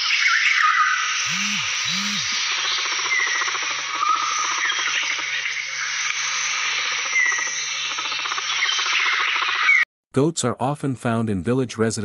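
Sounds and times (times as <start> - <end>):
short chirps: 1.2 - 2.4
chorus of frogs and insects: 1.3 - 9.8.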